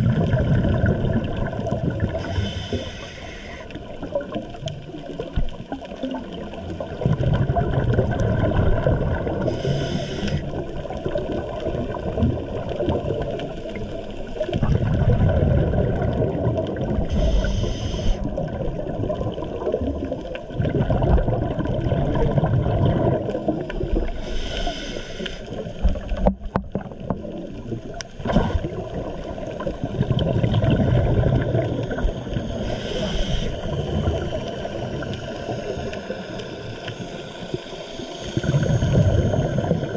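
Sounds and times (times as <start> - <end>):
regulator bubbles gurgling: 0.0 - 39.9
regulator inhale hiss: 2.2 - 4.0, 9.4 - 10.7, 17.1 - 18.4, 24.0 - 25.8, 32.2 - 39.9.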